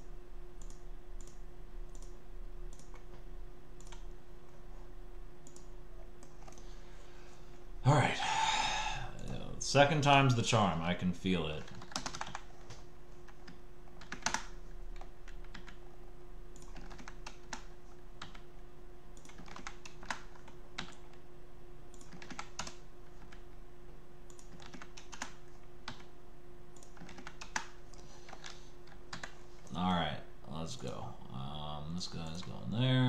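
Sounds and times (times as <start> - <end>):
computer keyboard and mouse clicking: 0.0 - 4.6, 5.4 - 6.7, 11.5 - 15.9, 16.5 - 18.5, 19.2 - 21.2, 21.9 - 23.5, 24.3 - 26.1, 26.7 - 29.8
steady low hum: 0.0 - 33.0.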